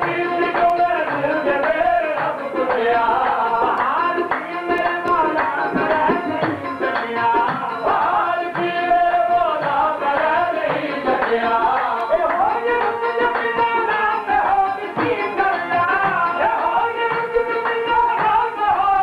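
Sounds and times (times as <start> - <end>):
harmonium: 0.0 - 19.0
man singing: 0.0 - 19.0.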